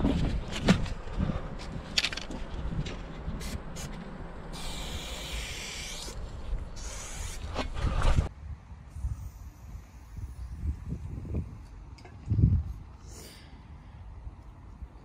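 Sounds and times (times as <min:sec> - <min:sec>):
spray paint can hissing: 0:04.5 - 0:07.6, 0:08.9 - 0:11.2.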